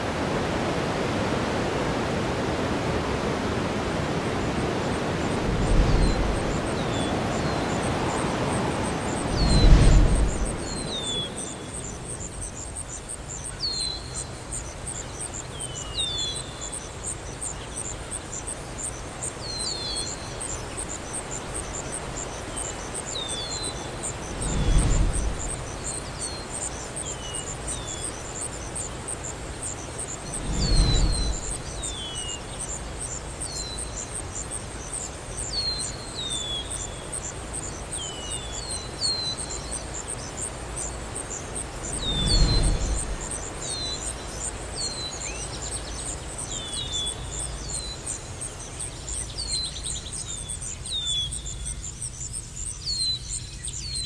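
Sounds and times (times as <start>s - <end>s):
birds chirping: 4.4s - 54.0s
high insect trill: 4.9s - 54.0s
wind rushing: 5.1s - 11.8s, 24.1s - 26.2s, 29.9s - 32.2s, 41.6s - 44.2s
low rushes: 5.3s - 7.2s, 8.9s - 11.4s, 24.1s - 26.2s, 30.0s - 32.0s, 41.6s - 44.2s.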